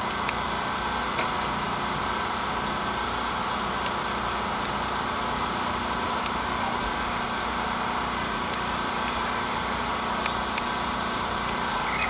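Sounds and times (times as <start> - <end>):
motor running: 1.1 - 12.0
sharp ticks: 10.2 - 12.0.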